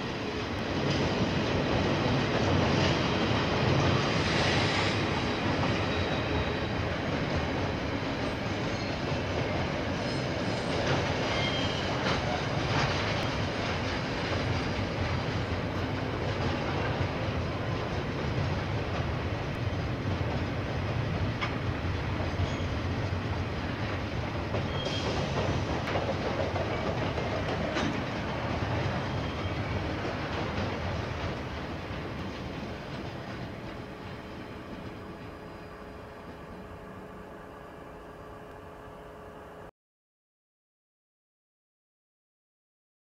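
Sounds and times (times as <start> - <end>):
freight train wagons rumbling: 0.0 - 39.4
train wheels clicking: 0.3 - 36.7.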